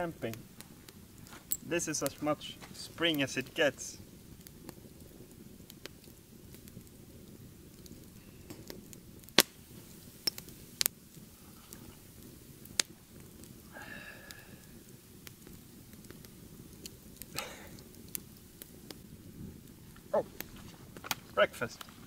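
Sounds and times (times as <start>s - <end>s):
campfire crackling and popping: 0.0s - 22.0s
faint steady background noise: 0.0s - 22.0s.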